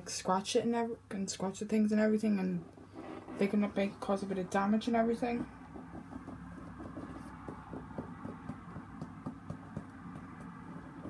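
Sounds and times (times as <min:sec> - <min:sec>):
shoe handling taps and clicks: 0:05.4 - 0:11.0.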